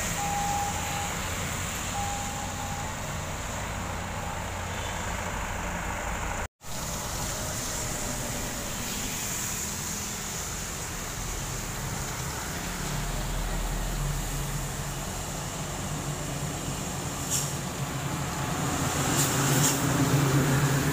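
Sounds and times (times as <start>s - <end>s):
truck engine drone: 0.0s - 20.9s
tyres hissing on wet road: 0.0s - 20.9s.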